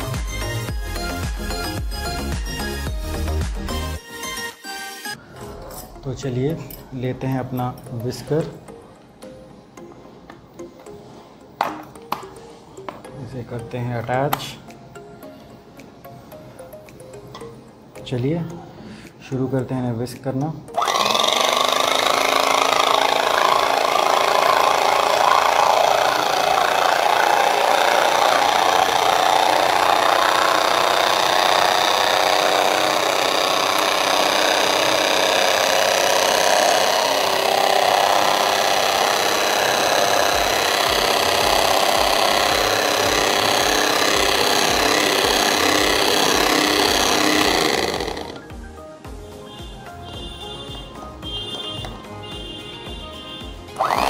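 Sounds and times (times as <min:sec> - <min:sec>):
hand mixer beaters striking bowl: 0:20.8 - 0:48.4.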